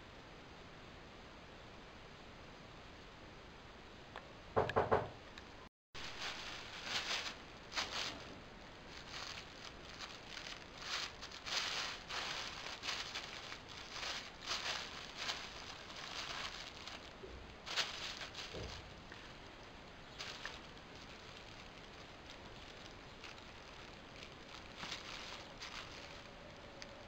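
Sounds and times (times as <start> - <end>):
plastic bag crinkling: 6.0 - 27.0.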